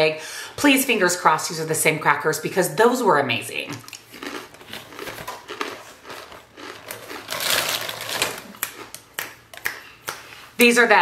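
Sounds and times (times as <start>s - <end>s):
crackers being chewed: 3.7s - 10.3s.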